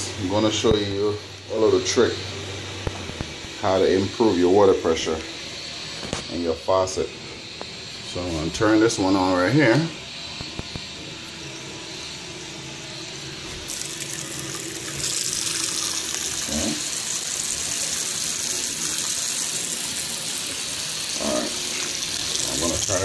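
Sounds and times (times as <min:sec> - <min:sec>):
faucet running into sink: 0:13.6 - 0:23.0.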